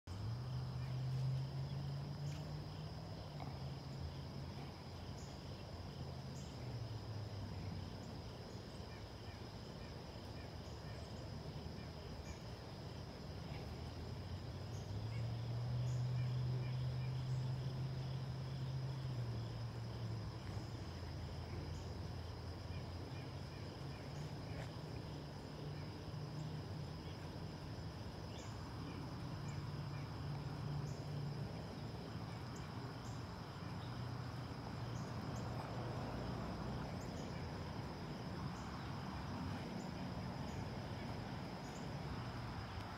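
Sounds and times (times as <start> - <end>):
insect chorus: 0.1 - 42.9.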